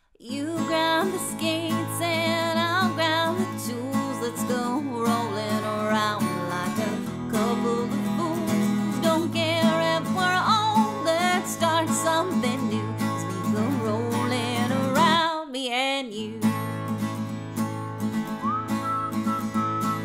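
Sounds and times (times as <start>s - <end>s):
woman singing: 0.2s - 16.7s
acoustic guitar country song: 0.2s - 20.0s.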